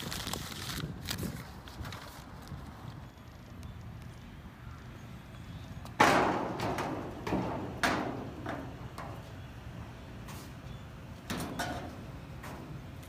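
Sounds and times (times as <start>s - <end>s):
footsteps on metal bleachers: 5.8s - 9.4s, 11.2s - 13.0s.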